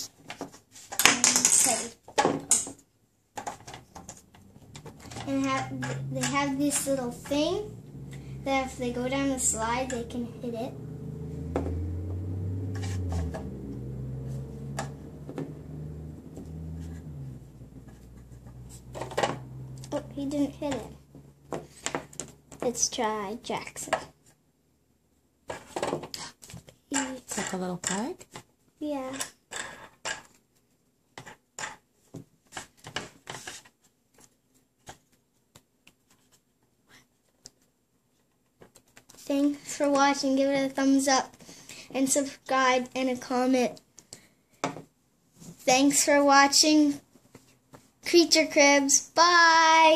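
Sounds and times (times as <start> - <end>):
low steady hum: 3.7 - 23.7.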